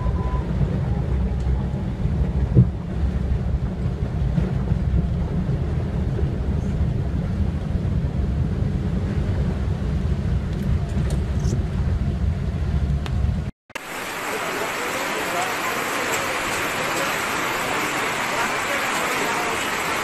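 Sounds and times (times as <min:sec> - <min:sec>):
vehicle cabin rumble: 0:00.0 - 0:13.5
rushing water hiss: 0:13.8 - 0:20.0.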